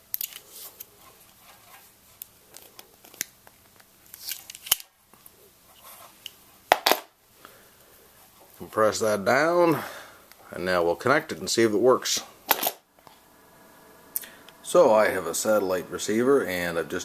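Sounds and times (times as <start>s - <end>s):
tool handling clicks and rattles: 12.5s - 12.8s.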